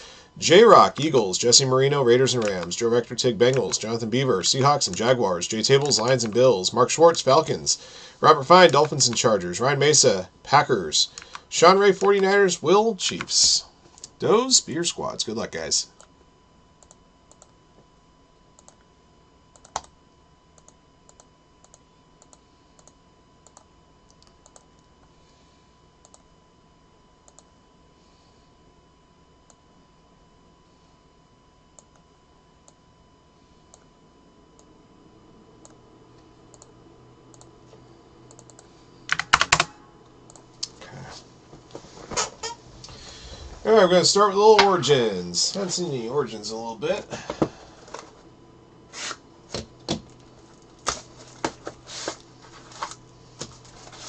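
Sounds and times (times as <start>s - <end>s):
keyboard and mouse clicks: 19.6s - 19.9s.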